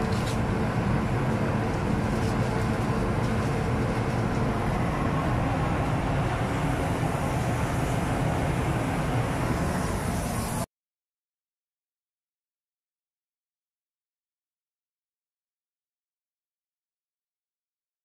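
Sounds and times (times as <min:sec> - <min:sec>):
machinery rumble with hiss: 0:00.0 - 0:10.7.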